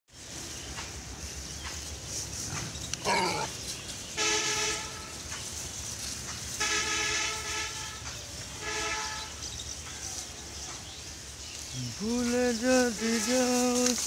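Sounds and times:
outdoor background noise: 0:00.1 - 0:14.0
vehicle horn honking: 0:04.1 - 0:05.3, 0:06.5 - 0:09.5, 0:12.7 - 0:14.0.

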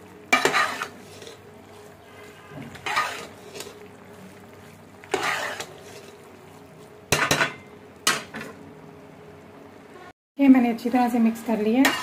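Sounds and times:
spoon scraping metal pot: 0:00.3 - 0:03.8, 0:05.0 - 0:06.2.

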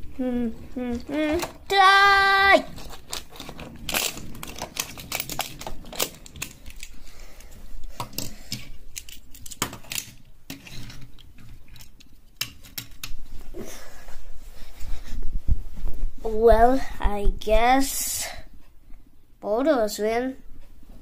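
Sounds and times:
toy cars and plastic track clicking: 0:02.5 - 0:07.0, 0:07.9 - 0:13.2.

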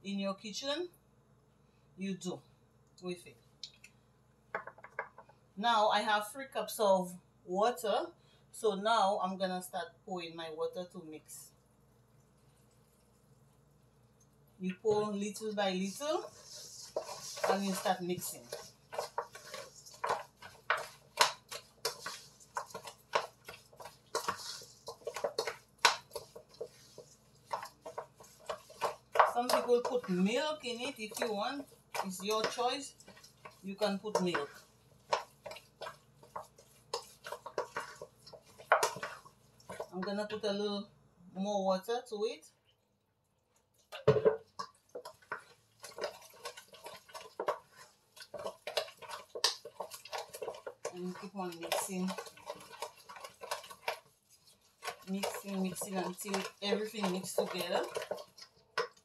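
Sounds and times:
hand squishing wet mixture: 0:12.0 - 0:40.8, 0:43.5 - 0:59.0.

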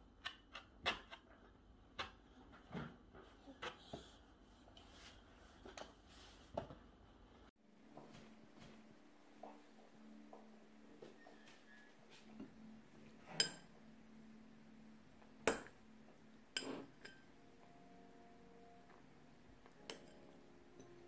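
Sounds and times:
faint steady hum: 0:06.6 - 0:21.0.

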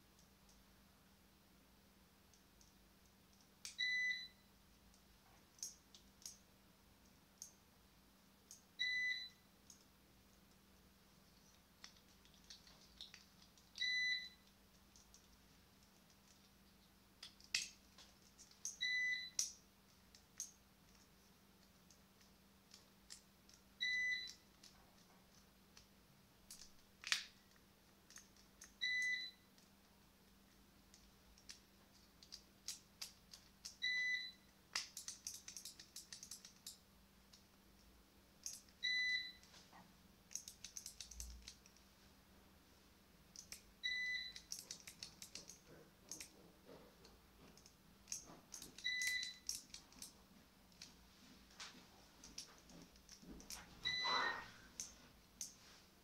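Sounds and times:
high electronic beep: 0:53.8 - 0:54.5.

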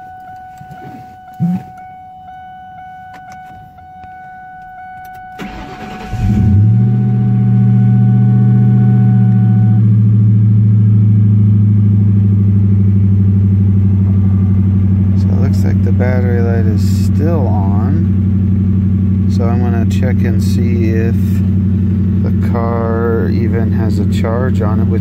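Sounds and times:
faint electronic tones: 0:00.0 - 0:09.8
car engine idling: 0:00.0 - 0:25.0.

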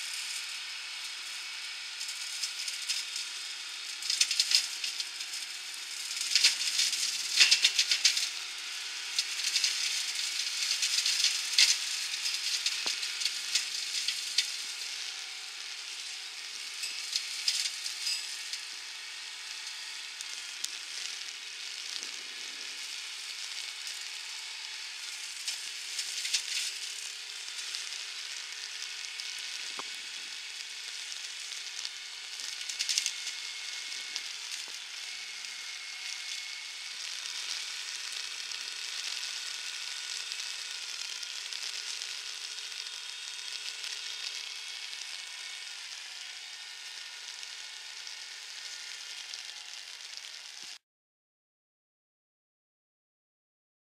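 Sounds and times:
hedge cutter crackling through twigs: 0:06.2 - 0:08.4, 0:25.0 - 0:30.3.

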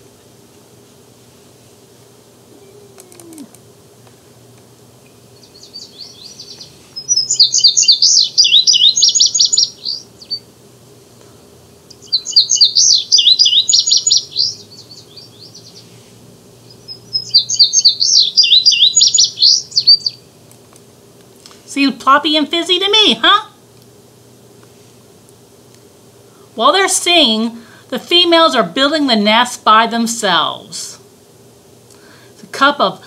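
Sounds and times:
recorded bird song played back: 0:05.3 - 0:10.5, 0:12.0 - 0:15.9, 0:16.6 - 0:20.3.

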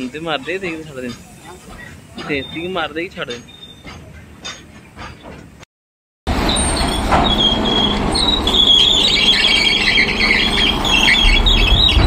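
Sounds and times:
metallic squealing: 0:00.4 - 0:05.2, 0:06.4 - 0:12.0
diesel engine rumble: 0:06.3 - 0:12.0.

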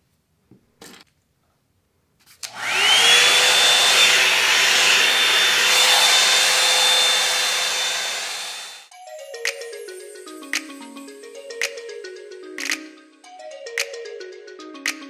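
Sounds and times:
hair dryer brush motor whine: 0:02.4 - 0:08.9.

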